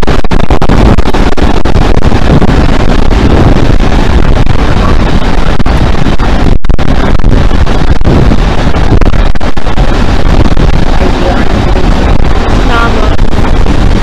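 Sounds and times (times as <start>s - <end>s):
diesel locomotives under power: 0.0s - 14.0s
wind buffeting on microphone: 0.0s - 14.0s.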